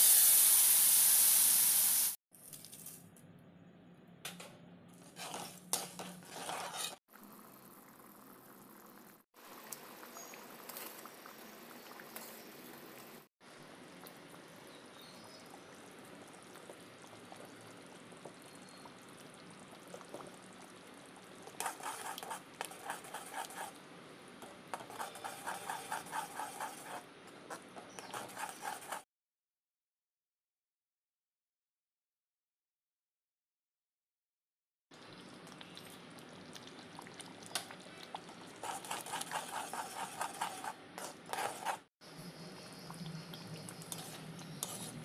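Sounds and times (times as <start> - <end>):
spatula stirring paste: 5.0 - 7.0, 21.4 - 23.8, 24.4 - 29.0, 38.1 - 41.9, 42.8 - 45.0
paste simmering with bubbling hiss: 5.2 - 23.9, 35.0 - 45.0.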